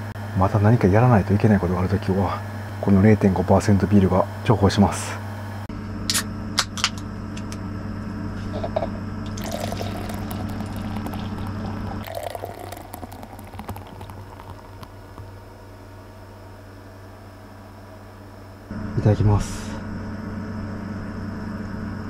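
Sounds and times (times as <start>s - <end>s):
air conditioner hum: 0.0s - 22.0s
foam fizzing and crackling: 9.3s - 15.4s
beer pouring into glass: 9.3s - 15.5s.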